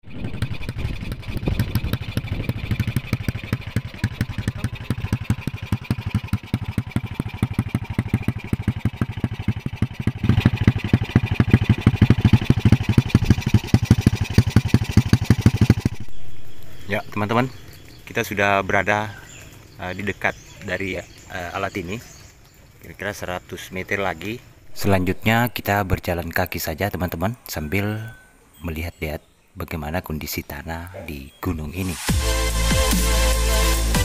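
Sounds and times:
motorcycle engine running: 0:00.0 - 0:22.1, 0:24.5 - 0:26.1, 0:32.1 - 0:34.0.

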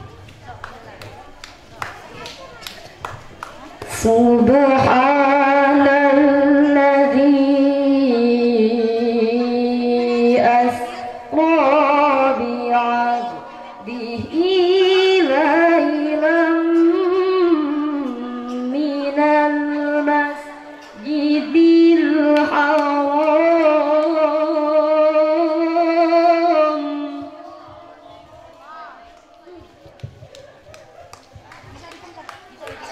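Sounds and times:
woman reciting melodically into microphone: 0:03.9 - 0:29.1.

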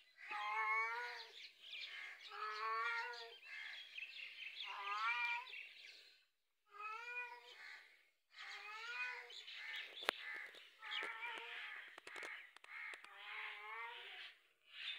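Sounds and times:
cat meowing: 0:00.3 - 0:01.2, 0:04.7 - 0:05.5
sharp click: 0:12.0 - 0:13.1.

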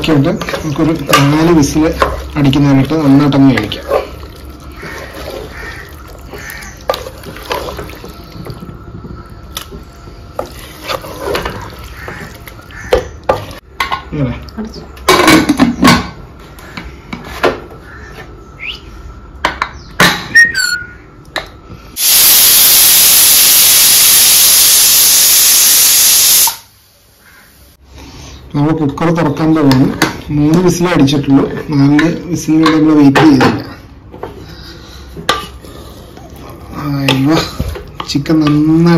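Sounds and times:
pressure cooker whistle hissing: 0:22.0 - 0:26.8.

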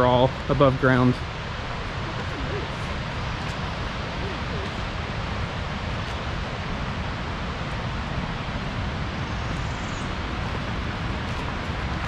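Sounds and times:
distant waterfall rushing: 0:00.0 - 0:12.0
wind buffeting microphone: 0:01.2 - 0:12.0.

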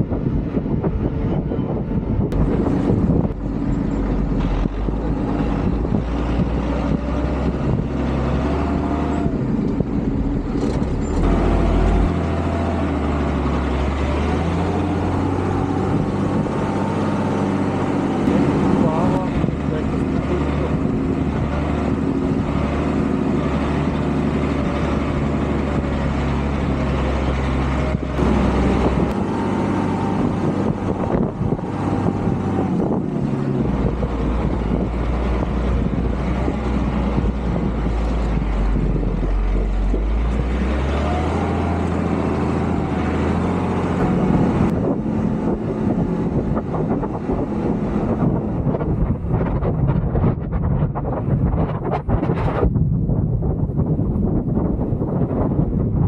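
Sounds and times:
diesel truck engine under load: 0:00.0 - 0:56.0.

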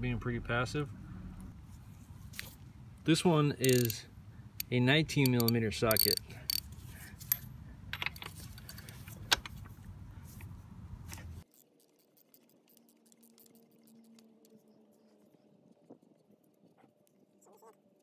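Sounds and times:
low steady rumble: 0:00.0 - 0:11.4
faint handling sounds: 0:01.6 - 0:16.3
ratchet clicking: 0:03.6 - 0:04.0, 0:04.6 - 0:09.0.

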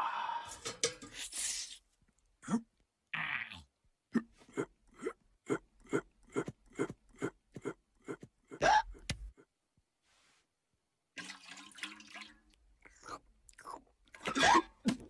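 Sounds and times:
cartoon footsteps: 0:06.4 - 0:09.3.

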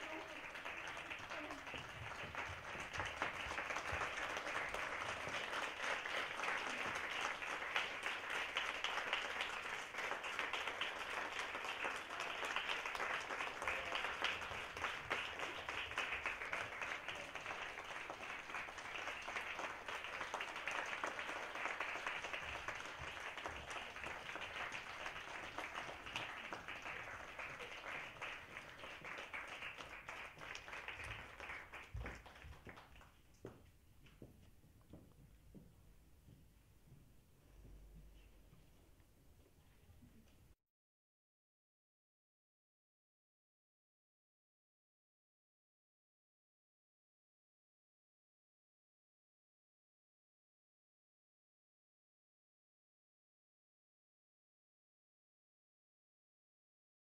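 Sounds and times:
audience applauding: 0:00.0 - 0:33.2.

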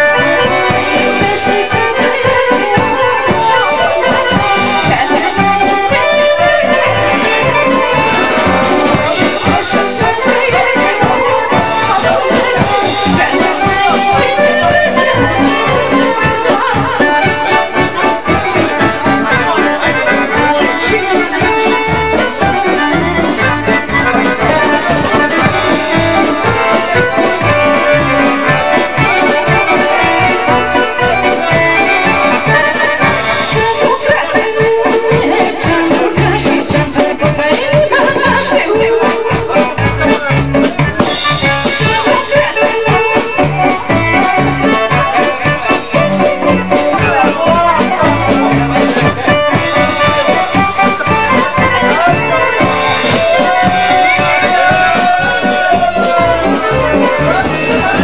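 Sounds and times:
folk dance music with accordion: 0:00.0 - 0:58.0.

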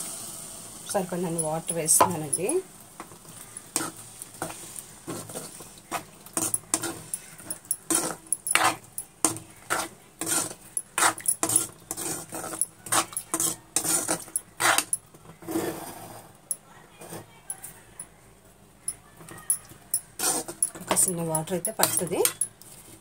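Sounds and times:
steel spoon scraping pan: 0:01.2 - 0:02.6, 0:03.8 - 0:15.0, 0:19.5 - 0:22.5.

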